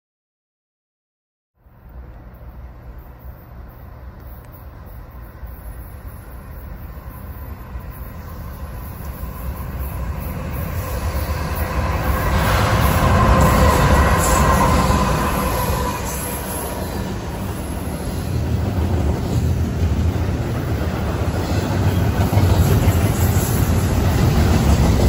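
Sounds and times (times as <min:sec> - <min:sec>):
freight train rumble: 0:01.6 - 0:25.0
steady high tone: 0:02.4 - 0:18.7.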